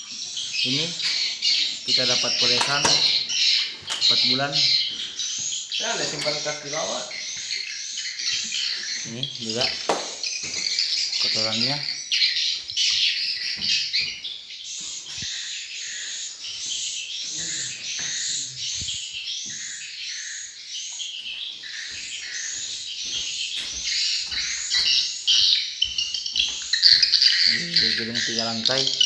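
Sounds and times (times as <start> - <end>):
swiftlets chirping: 26.0 - 29.0.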